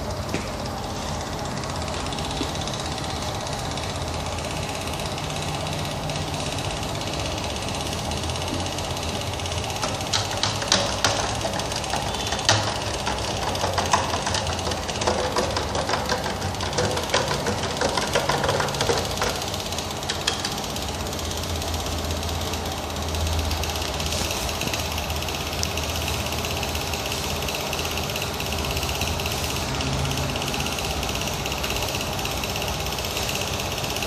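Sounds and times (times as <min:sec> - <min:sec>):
electric pump humming: 0:00.0 - 0:34.0
clicks and rattles: 0:09.8 - 0:20.8.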